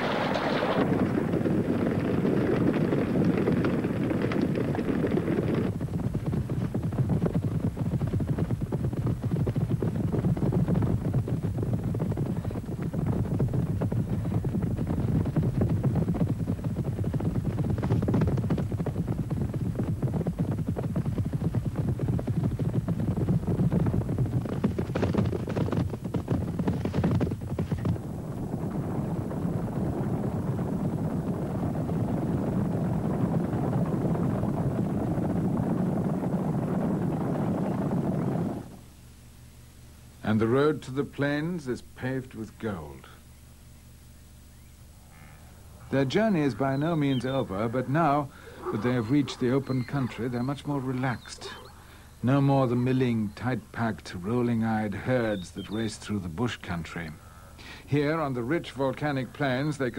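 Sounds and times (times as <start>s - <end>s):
herd hoofbeats rumbling: 0.0s - 38.9s, 40.2s - 59.9s.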